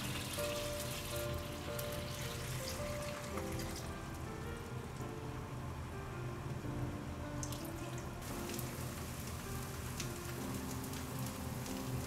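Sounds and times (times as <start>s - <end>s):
food sizzling in pan: 0.0s - 3.7s, 8.2s - 12.0s
soft background music: 0.0s - 12.0s.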